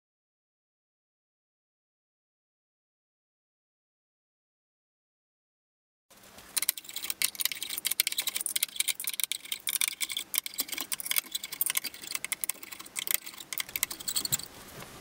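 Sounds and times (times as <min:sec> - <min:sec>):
hand tool clicking metallically: 0:06.6 - 0:14.5.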